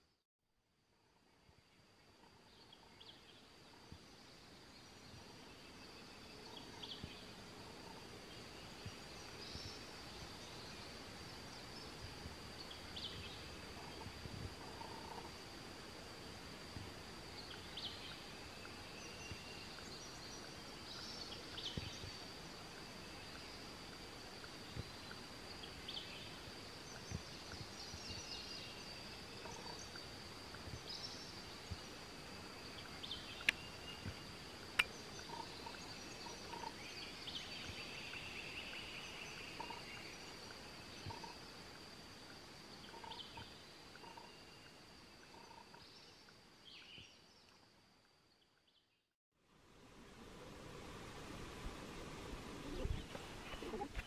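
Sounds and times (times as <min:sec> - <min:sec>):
faint bird chirps: 0:32.6 - 0:41.4, 0:42.8 - 0:47.6.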